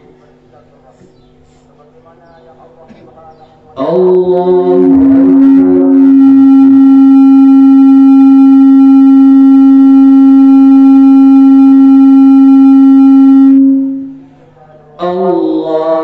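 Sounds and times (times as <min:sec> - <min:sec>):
microphone feedback howl: 0:03.8 - 0:14.4.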